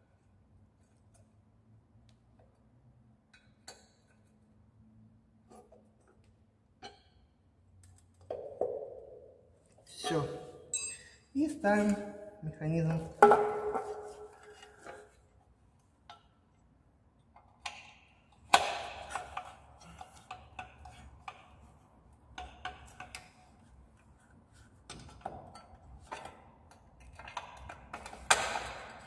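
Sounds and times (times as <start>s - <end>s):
metal clinks and taps: 10.7s - 11.2s.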